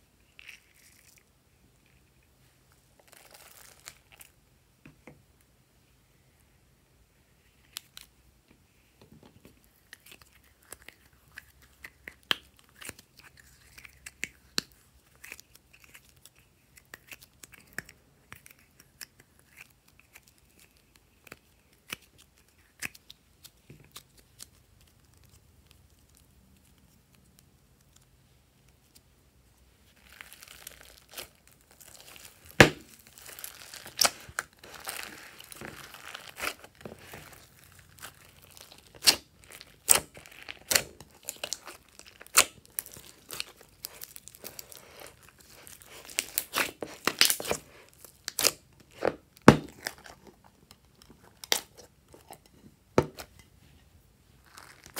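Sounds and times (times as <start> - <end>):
clay clicks and crinkles: 0.0 - 6.5, 7.3 - 54.9
sticky slime crackling and popping: 9.6 - 28.0, 29.9 - 52.2.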